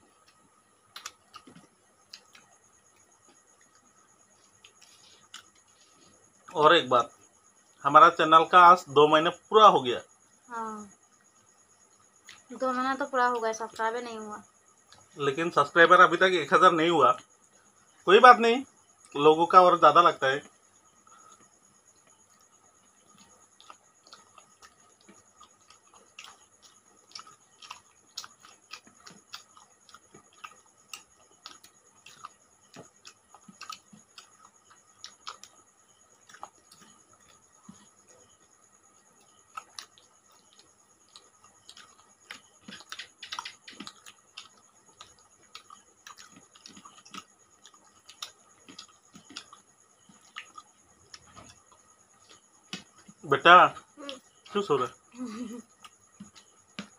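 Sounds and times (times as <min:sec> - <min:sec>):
people chewing and lip smacking: 0:00.0 - 0:06.6, 0:12.2 - 0:12.5, 0:14.8 - 0:15.2, 0:20.4 - 0:56.9.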